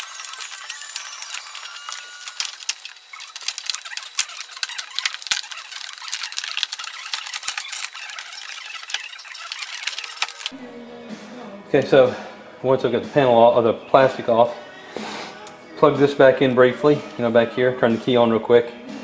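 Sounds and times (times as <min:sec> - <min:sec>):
plastic sheet peeling and crinkling: 0:00.0 - 0:10.6.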